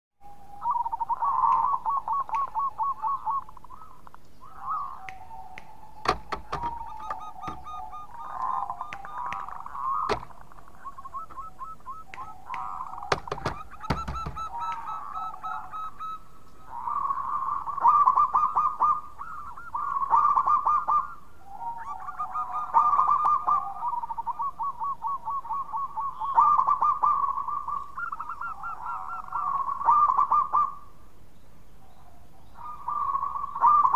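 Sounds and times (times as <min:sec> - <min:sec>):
dove cooing: 0:00.2 - 0:30.9, 0:31.9 - 0:33.9
sharp clicks: 0:05.1 - 0:11.5, 0:12.1 - 0:14.8.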